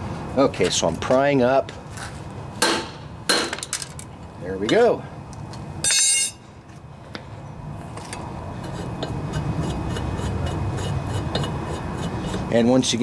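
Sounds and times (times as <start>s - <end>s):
metal tool clanking down: 5.8s - 6.4s.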